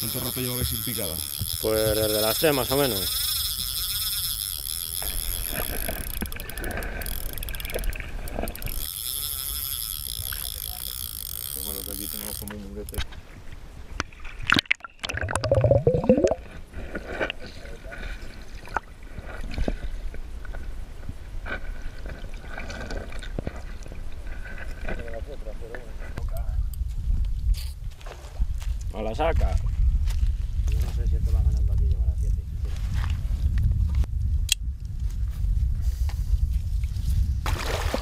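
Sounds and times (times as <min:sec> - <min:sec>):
underwater sloshing and gurgling: 0:13.2 - 0:20.7, 0:21.5 - 0:26.1
constant low rumble: 0:23.4 - 0:37.5
small splashes and knocks: 0:37.4 - 0:38.0
water sloshing around legs: 0:37.5 - 0:38.0.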